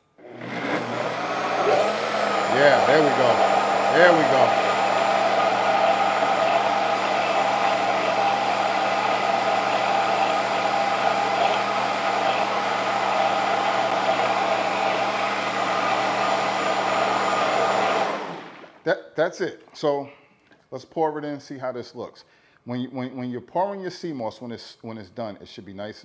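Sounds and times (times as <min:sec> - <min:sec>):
blender motor whirring: 0:00.0 - 0:18.8.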